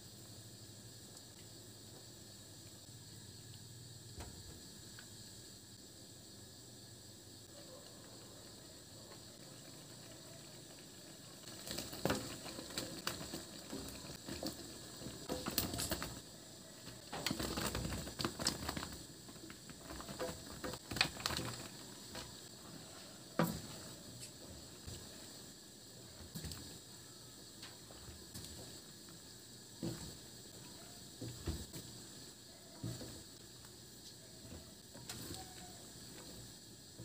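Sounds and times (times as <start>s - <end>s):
broth simmering in a wok: 0.0s - 17.4s.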